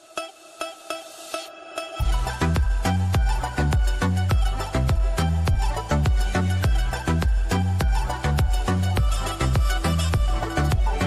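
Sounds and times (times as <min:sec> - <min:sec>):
fast beat music with bass line: 0:00.0 - 0:11.0.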